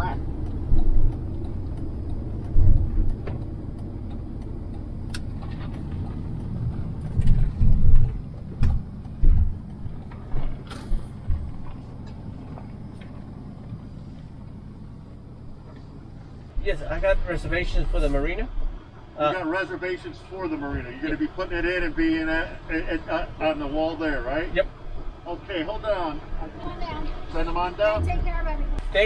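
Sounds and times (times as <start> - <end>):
short low thumps: 0.0 - 5.4, 6.4 - 11.8, 27.9 - 29.0
road and engine rumble: 0.0 - 29.0.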